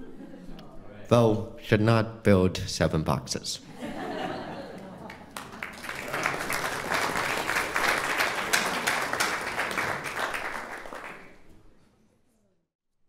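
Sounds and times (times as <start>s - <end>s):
congregation applauding: 4.8s - 11.5s.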